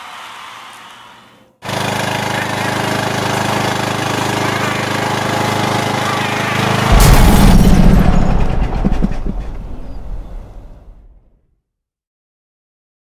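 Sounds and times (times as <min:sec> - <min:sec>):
lawn mower engine running: 0:01.6 - 0:07.0
loud crash-like blast: 0:06.8 - 0:11.3.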